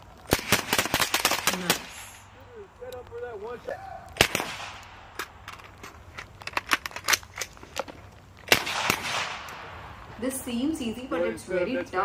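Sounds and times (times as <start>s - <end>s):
rifle shots: 0.3s - 2.0s, 4.2s - 5.3s, 8.5s - 9.7s.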